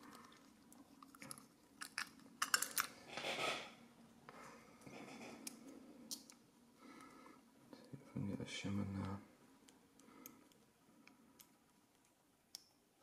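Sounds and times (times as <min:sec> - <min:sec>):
rustling scrape: 0:03.0 - 0:03.8.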